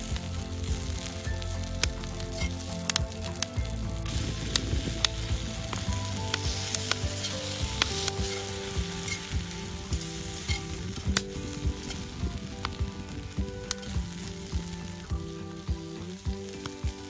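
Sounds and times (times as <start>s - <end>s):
pods sizzling in frying pan: 0.0s - 17.0s.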